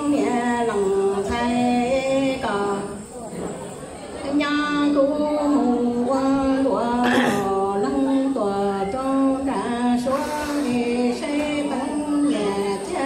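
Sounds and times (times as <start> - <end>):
person singing amplified: 0.0 - 3.4, 4.1 - 13.0
brief hissy noises: 10.1 - 10.8.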